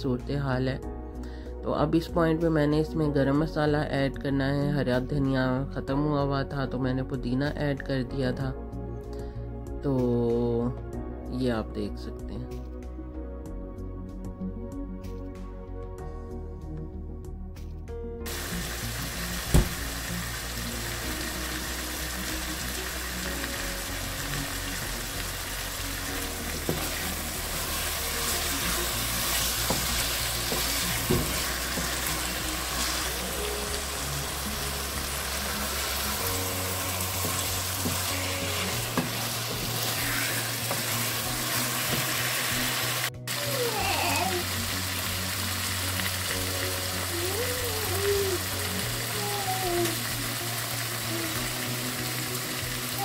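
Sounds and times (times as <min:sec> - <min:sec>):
soft background music: 0:00.0 - 0:53.0
curry sizzling in oil: 0:18.3 - 0:53.0.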